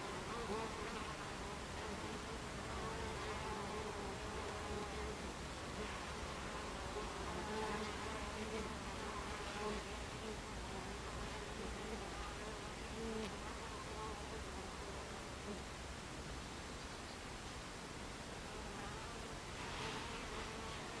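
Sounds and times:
honey bees buzzing: 18.4s - 21.0s.

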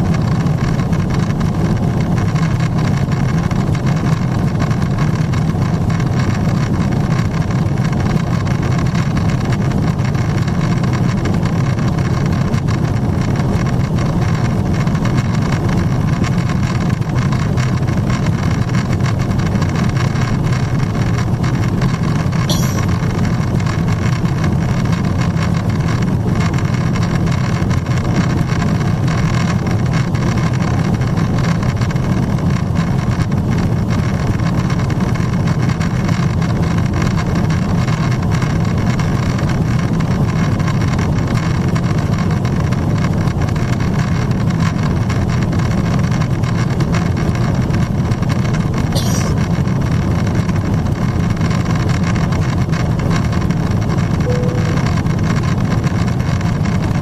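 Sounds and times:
airplane cabin roar: 48.9s - 49.9s, 54.3s - 55.8s.

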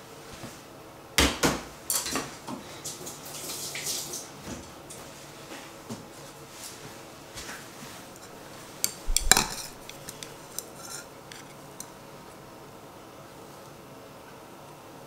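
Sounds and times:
utensils clinking against dish: 8.8s - 12.0s.

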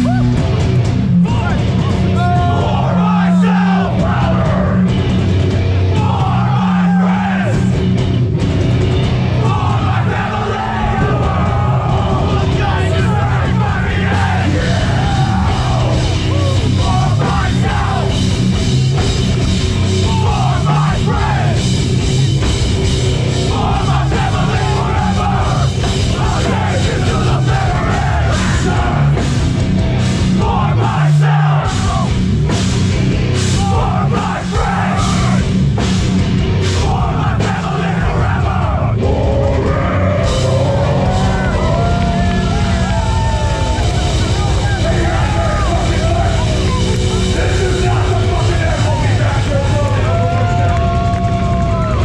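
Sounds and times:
hardcore band playing live: 0.0s - 52.0s
shouted vocals: 1.2s - 4.9s, 5.8s - 7.8s, 9.3s - 18.2s, 20.0s - 21.6s, 23.4s - 29.2s, 30.3s - 32.2s, 33.4s - 35.5s, 36.7s - 52.0s.

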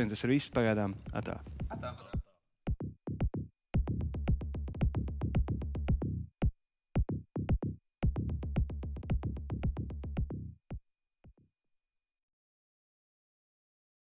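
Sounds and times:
electronic music with deep bass: 2.7s - 6.3s, 7.0s - 10.6s.

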